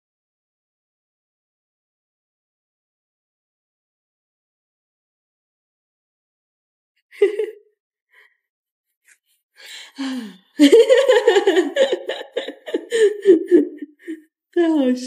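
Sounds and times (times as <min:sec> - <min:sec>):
woman laughing: 0:07.2 - 0:07.6, 0:09.7 - 0:14.2.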